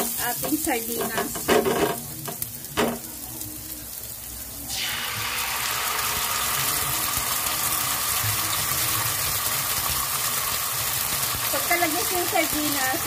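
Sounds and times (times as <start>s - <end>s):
food sizzling in hot pan: 0.0s - 13.0s.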